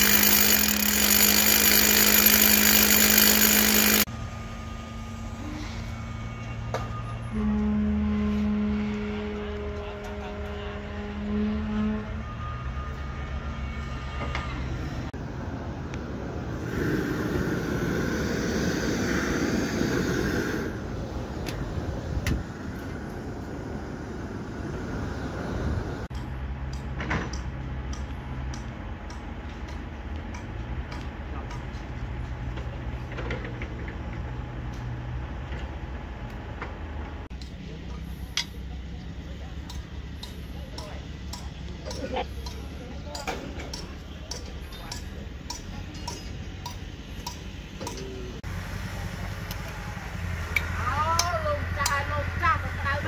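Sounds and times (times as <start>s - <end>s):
rushing mechanical noise: 0.0s - 4.1s
machinery engine hum: 0.0s - 7.0s.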